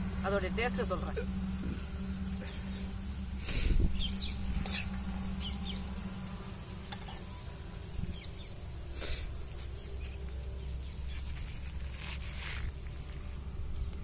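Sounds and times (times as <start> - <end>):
steady low hum: 0.0 - 14.0
faint bird chirps: 3.9 - 6.0
ladle scraping iron pan: 4.5 - 5.2.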